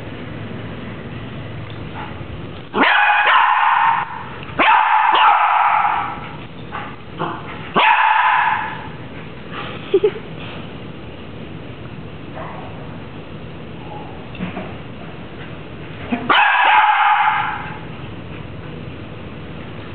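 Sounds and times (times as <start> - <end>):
small dog barking: 2.8 - 6.2, 7.2 - 8.9, 16.2 - 17.8.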